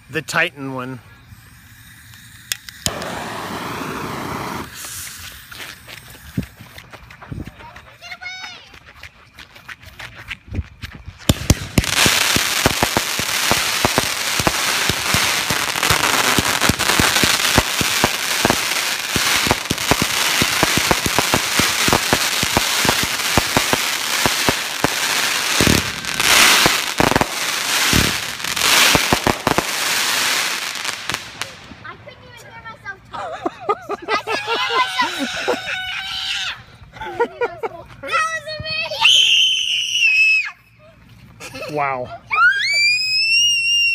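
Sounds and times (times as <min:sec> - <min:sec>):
fireworks launching with hiss: 0:00.0 - 0:07.1, 0:11.2 - 0:32.8
fireworks crackling and popping: 0:00.0 - 0:07.8, 0:10.3 - 0:33.4.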